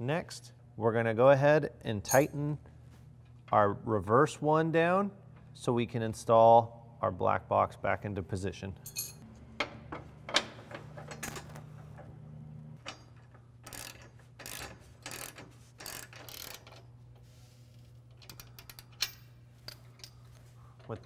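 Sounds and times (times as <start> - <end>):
ratcheting wrench clicking: 12.9 - 16.9, 18.1 - 20.2.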